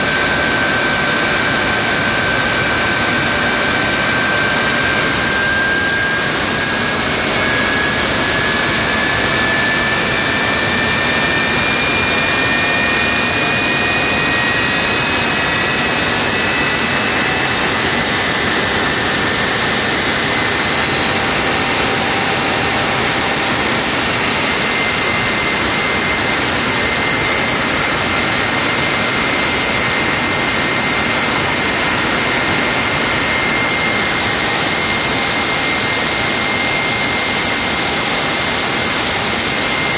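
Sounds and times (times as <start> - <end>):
turbojet roaring with whine: 0.0 - 39.9.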